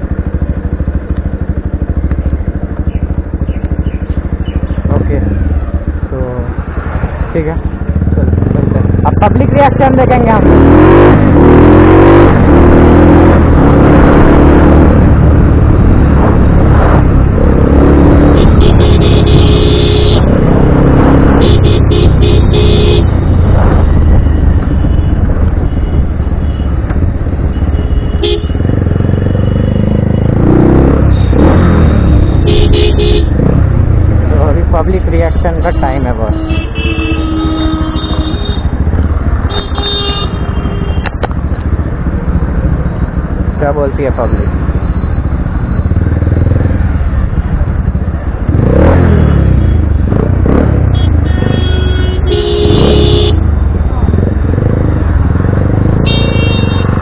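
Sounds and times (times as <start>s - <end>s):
motorcycle engine running: 0.0s - 57.0s
vehicle horn beeping: 18.4s - 20.3s, 21.4s - 23.2s, 27.6s - 28.6s, 31.2s - 33.4s, 35.4s - 38.8s, 39.5s - 41.1s, 50.9s - 53.5s, 56.0s - 57.0s.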